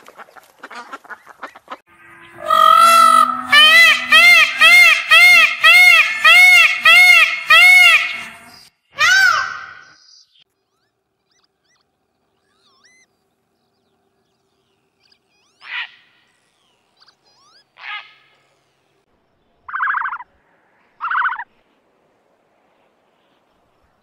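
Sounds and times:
peacock call: 1.9 - 10.0, 21.0 - 21.5
short harsh bird calls: 2.3 - 10.1
faint small-bird chirps: 9.8 - 15.7, 16.3 - 18.9.

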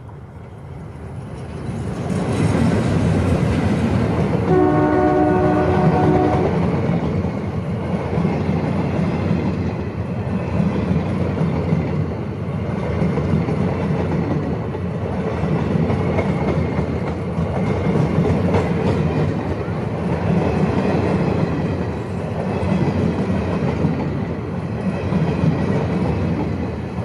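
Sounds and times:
train wheels rumbling on rails: 0.0 - 27.0.

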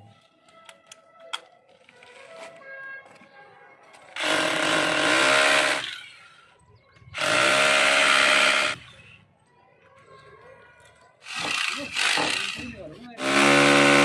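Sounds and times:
electric drill boring into wall: 4.2 - 6.2, 7.2 - 8.8, 11.2 - 14.0.

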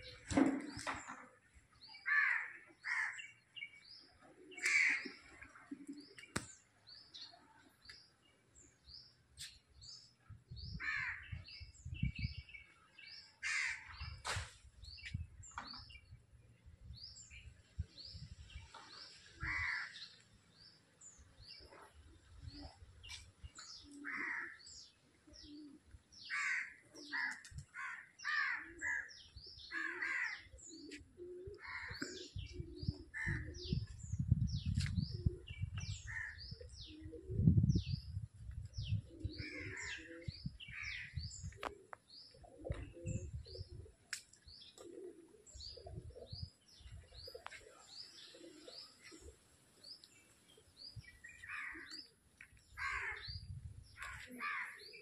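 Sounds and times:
crows cawing: 2.1 - 3.2, 13.4 - 13.9, 19.4 - 20.0, 26.3 - 29.1, 29.7 - 30.4, 52.8 - 53.2, 54.0 - 54.8
small birds chirping: 17.0 - 55.0
low microphone rumble: 32.4 - 41.6.

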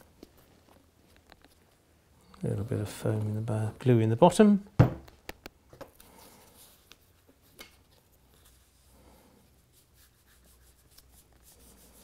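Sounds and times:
soft rubbing of fingers: 6.0 - 12.0.

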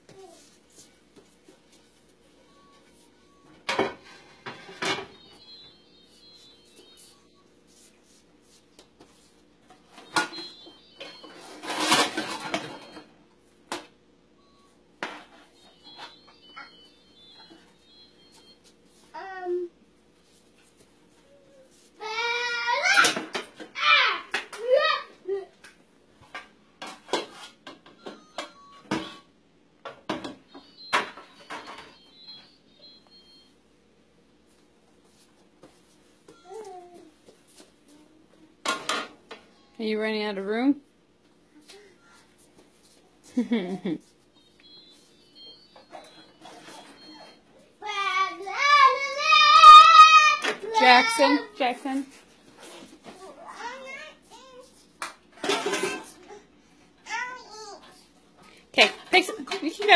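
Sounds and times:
dishes clinking and knocking: 55.4 - 56.1.

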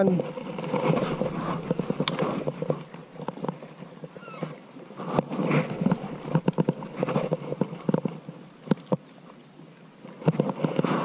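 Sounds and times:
leaves and stems rustling: 0.0 - 8.5.

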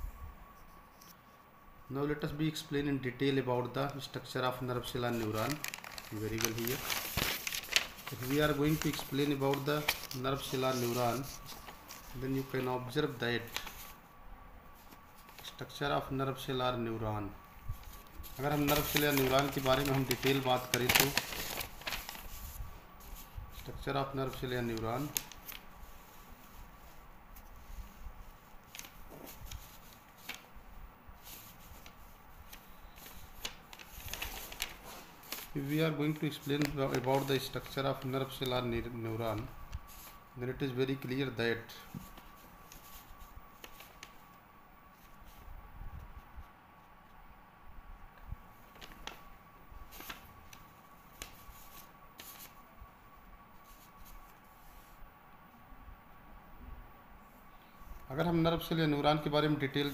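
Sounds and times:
faint high-pitched whine: 0.0 - 59.9
low room hum: 0.0 - 59.9
paper rustling: 4.8 - 14.0, 14.8 - 15.6, 17.7 - 30.5, 31.2 - 44.3, 48.6 - 52.6, 53.6 - 55.0
soft handling clicks and rustles: 31.2 - 35.6.

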